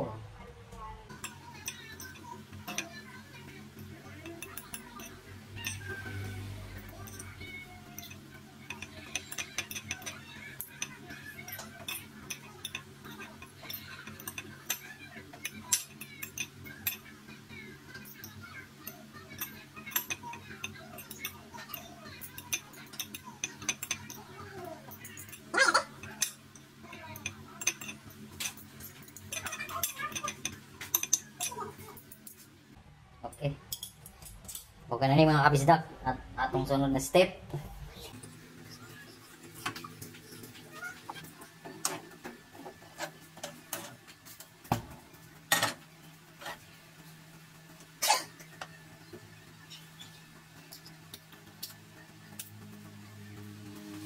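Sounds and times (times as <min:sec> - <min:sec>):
fork clinking against a plate: 0:06.9 - 0:17.1, 0:18.0 - 0:32.4.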